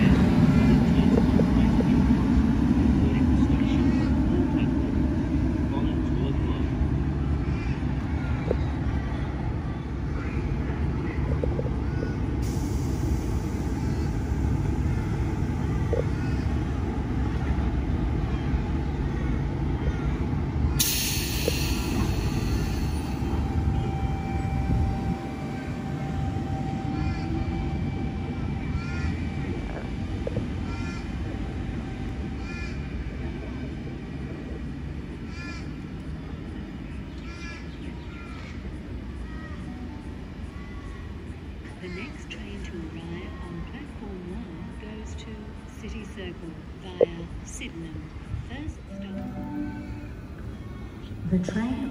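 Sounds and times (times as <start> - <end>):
electric train low rumble and hum: 0.0 - 51.9
bird calling: 13.6 - 27.9, 28.6 - 29.7, 30.5 - 31.6, 36.9 - 41.1.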